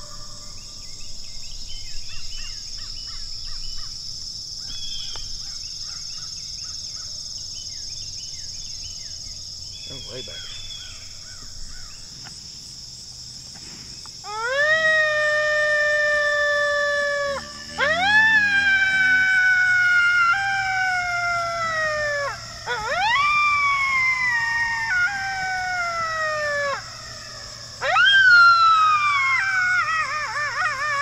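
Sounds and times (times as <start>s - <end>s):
coyote howls: 14.2s - 31.0s.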